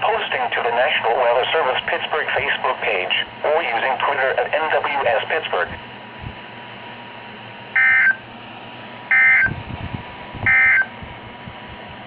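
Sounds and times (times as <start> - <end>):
steady radio hiss: 0.0 - 7.4
digital alert data bursts: 7.8 - 8.2, 9.1 - 9.5, 10.5 - 10.9.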